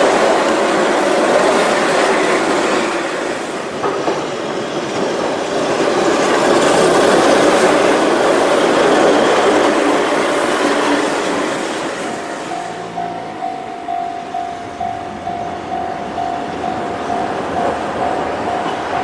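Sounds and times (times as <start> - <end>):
train passing: 0.0 - 19.0
wheel and rail noise: 0.0 - 19.0.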